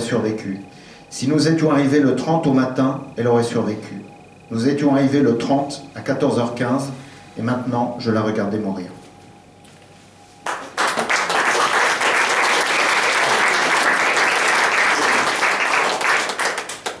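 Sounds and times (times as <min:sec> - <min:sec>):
audience applause: 0:10.4 - 0:17.0.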